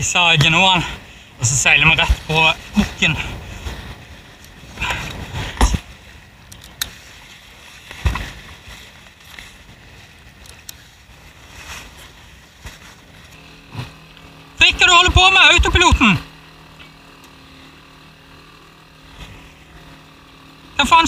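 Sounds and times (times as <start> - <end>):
sail cloth knocking and rustling: 7.7 - 9.8.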